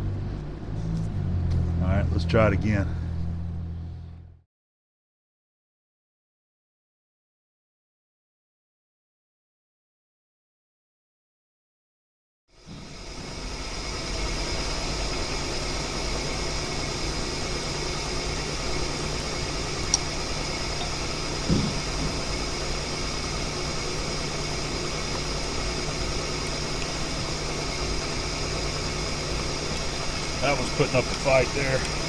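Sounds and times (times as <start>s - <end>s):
drill humming with high whine: 12.6s - 32.0s
short thump: 21.5s - 22.1s.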